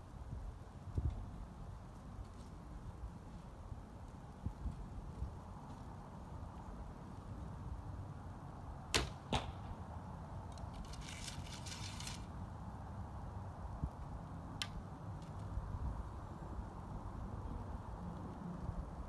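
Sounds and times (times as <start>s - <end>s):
arrow striking target: 8.9s - 9.8s
arrow rustling in quiver: 10.6s - 12.3s.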